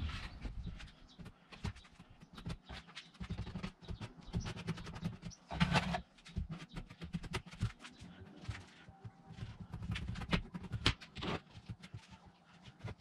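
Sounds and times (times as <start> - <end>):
tools tapping and scraping board: 0.7 - 7.9.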